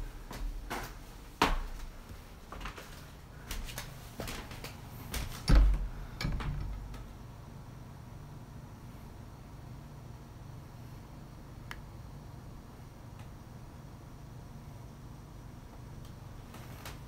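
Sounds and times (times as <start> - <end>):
wooden door opening: 5.2 - 7.1
knocks and latch clicks: 5.5 - 7.1.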